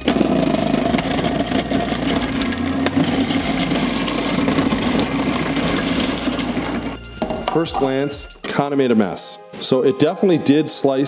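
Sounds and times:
food processor motor running: 0.0 - 7.0.

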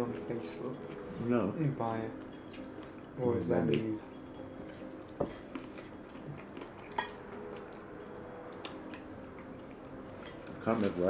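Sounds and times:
cutlery and crockery clinking: 6.8 - 7.2.

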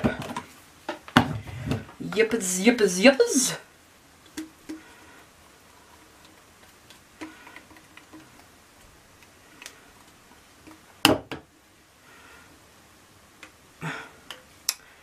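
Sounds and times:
spatula tapping and scraping plastic: 6.2 - 8.5.

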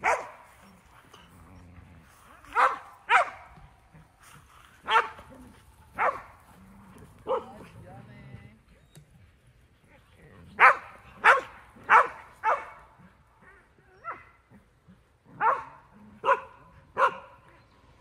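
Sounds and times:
dog barking: 0.0 - 0.4, 2.5 - 3.6, 4.8 - 5.2, 6.0 - 6.3, 7.2 - 7.6, 10.6 - 12.9, 15.4 - 17.5.

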